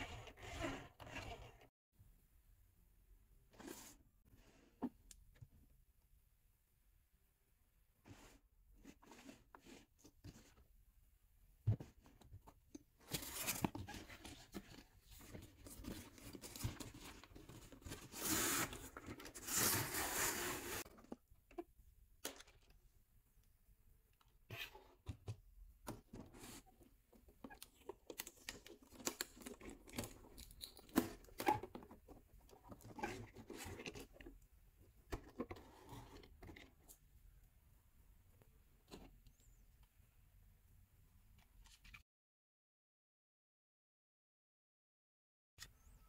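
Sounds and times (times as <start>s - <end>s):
cardboard rustling and scraping: 13.0s - 21.1s.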